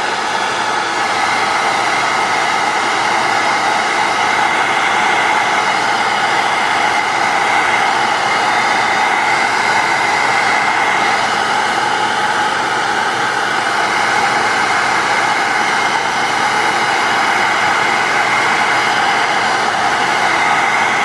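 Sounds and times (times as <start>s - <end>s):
fan motor whine: 0.0s - 21.0s
heat gun blowing air: 0.0s - 21.0s.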